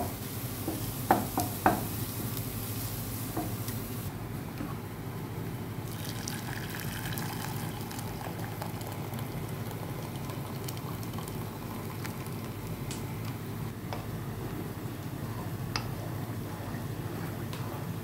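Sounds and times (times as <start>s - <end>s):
water pouring into a saucepan: 5.8s - 12.6s.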